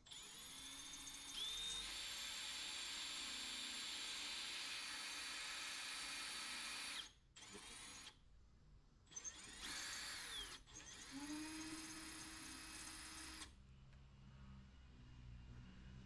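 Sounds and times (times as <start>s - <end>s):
cordless drill whining: 0.1s - 8.2s, 9.1s - 13.6s.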